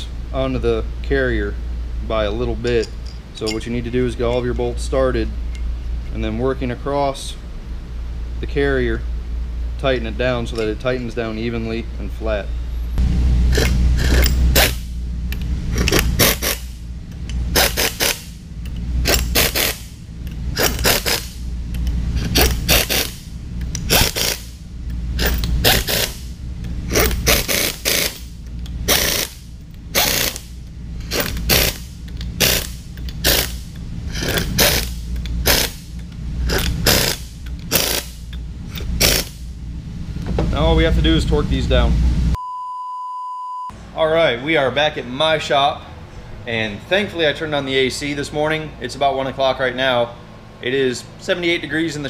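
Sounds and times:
steady low hum: 0.0 - 42.8, 43.6 - 52.0
pneumatic impact wrench bursts: 13.5 - 15.0, 15.7 - 16.8, 17.4 - 18.4, 19.0 - 21.5, 22.1 - 39.5.

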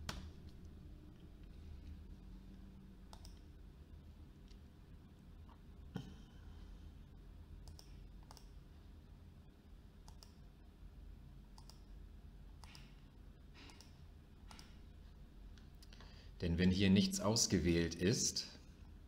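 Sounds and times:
quiet room noise: 0.0 - 19.0
faint computer mouse clicks: 3.1 - 3.4, 7.6 - 8.5, 10.1 - 10.4, 11.6 - 11.9, 12.6 - 13.0, 13.6 - 14.8.

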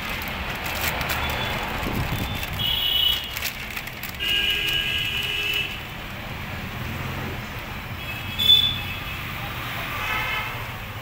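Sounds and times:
plastic packaging crinkling: 0.0 - 6.0.

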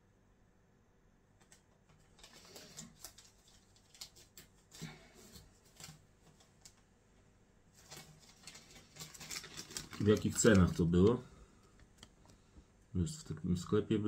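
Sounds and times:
rustling and light clicks: 1.4 - 6.9, 7.7 - 12.6.

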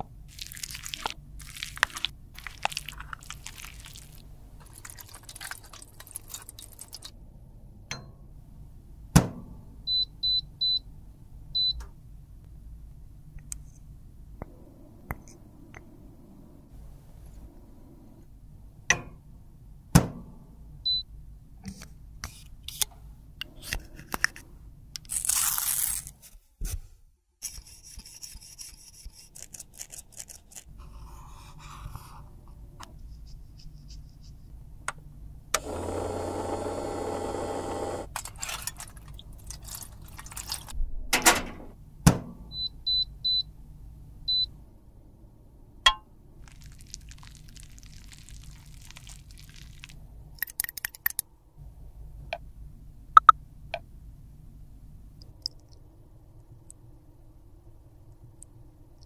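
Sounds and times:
steady machine hum: 35.6 - 38.1.

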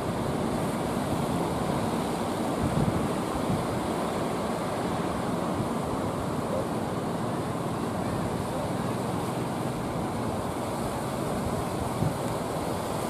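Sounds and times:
wind on microphone: 0.0 - 5.8, 11.2 - 13.0
heavy surf breaking: 0.0 - 13.0.

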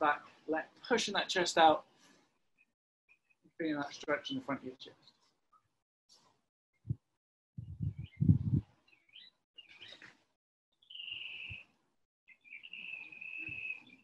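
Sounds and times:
low muffled bursts: 7.6 - 8.6
birds chirping: 7.6 - 10.1, 10.8 - 11.7, 12.3 - 14.0.

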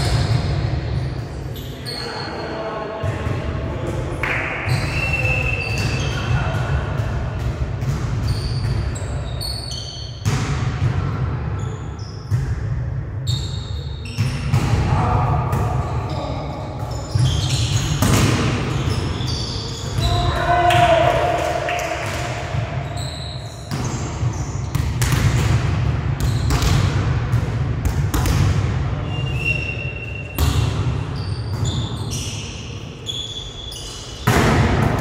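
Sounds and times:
sneakers squeaking on floor: 0.0 - 3.2, 4.6 - 6.8, 7.8 - 10.4, 11.6 - 12.6, 13.2 - 14.7, 15.6 - 20.6, 22.1 - 25.4, 26.2 - 26.9, 29.0 - 34.4.

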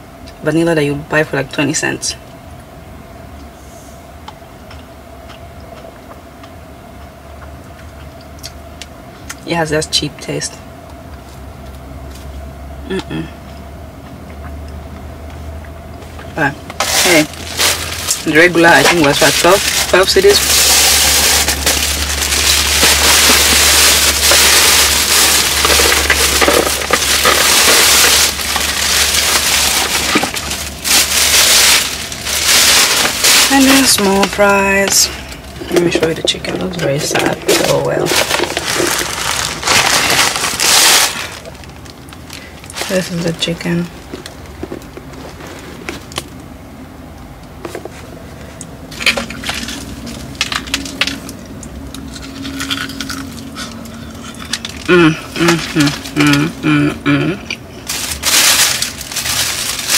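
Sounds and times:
paper and cardboard crinkling: 16.7 - 46.3, 54.2 - 56.6, 57.9 - 59.9.

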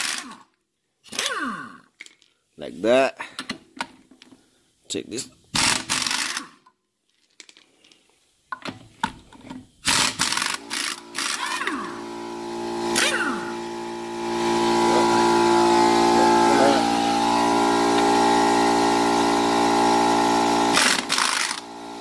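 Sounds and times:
air compressor running: 5.6 - 6.4, 9.8 - 22.0
air impact wrench hammering: 5.6 - 6.5, 9.8 - 22.0.

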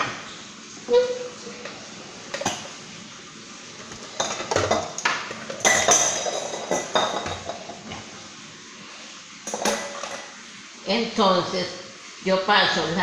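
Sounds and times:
metal bowls and utensils clattering: 1.6 - 2.8, 3.8 - 8.1, 9.4 - 10.4.

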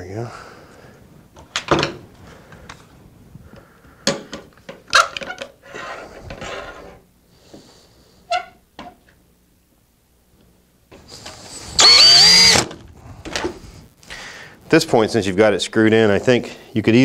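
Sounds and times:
cordless drill whirring: 11.6 - 12.7.

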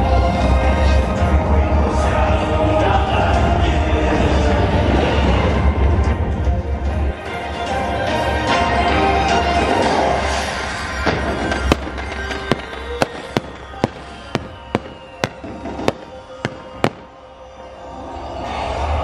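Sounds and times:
orchestral music: 0.0 - 19.0
fireworks bursting: 10.8 - 17.2.

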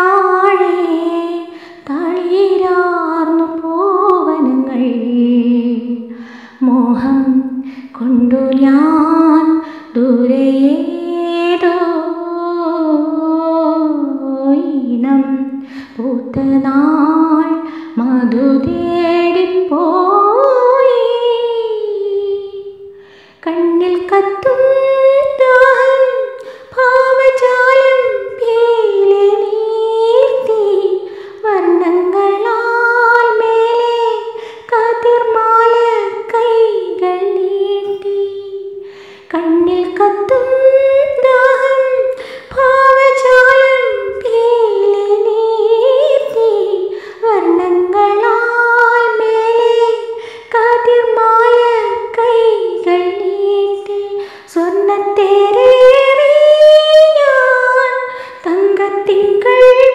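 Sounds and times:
woman humming a melody: 37.8 - 38.5.

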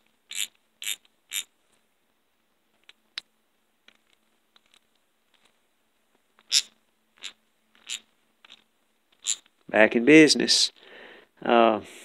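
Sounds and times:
rag wiping a ratchet: 0.3 - 1.5.

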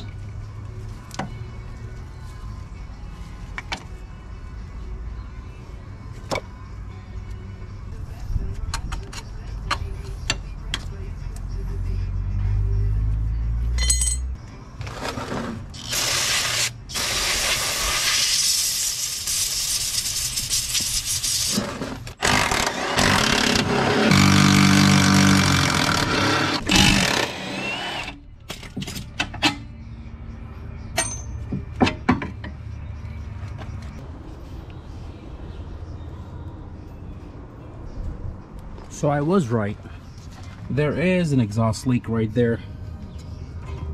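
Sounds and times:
power tool running: 22.2 - 28.2
tools knocking on metal: 31.0 - 32.6.

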